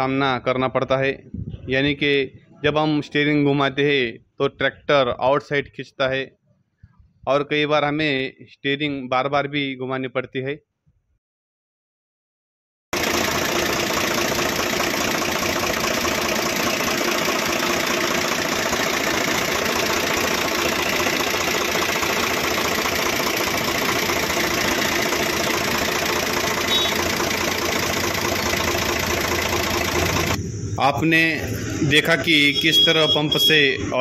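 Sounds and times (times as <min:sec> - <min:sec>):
diesel tractor engine idling: 0:13.0 - 0:33.4.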